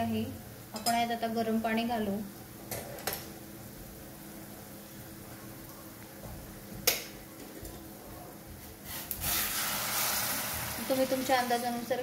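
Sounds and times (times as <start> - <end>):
greens steaming hiss: 8.9 - 12.0.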